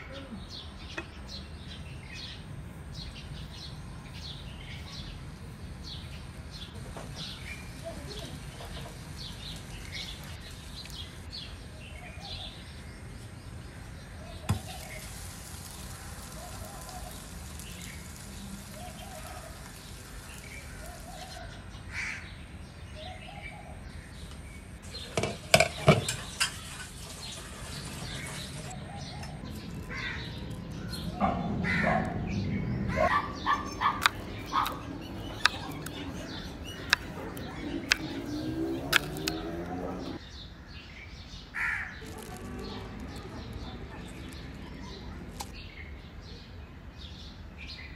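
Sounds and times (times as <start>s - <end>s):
birds calling: 0.0s - 47.9s
bread sizzling in a pan: 14.4s - 21.6s, 25.4s - 28.7s
sharp clicks and rustles: 33.7s - 40.2s, 42.0s - 45.6s.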